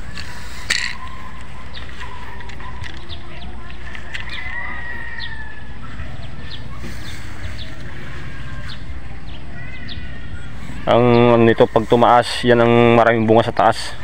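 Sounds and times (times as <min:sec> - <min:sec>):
small birds chirping: 0:00.0 - 0:14.0
rooster crowing: 0:04.1 - 0:06.0.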